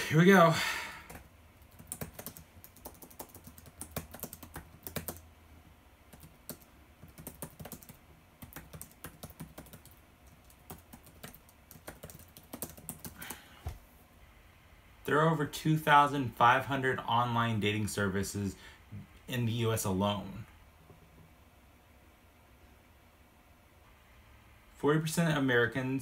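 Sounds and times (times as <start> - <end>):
laptop keyboard typing: 1.1 - 5.3, 6.1 - 13.5.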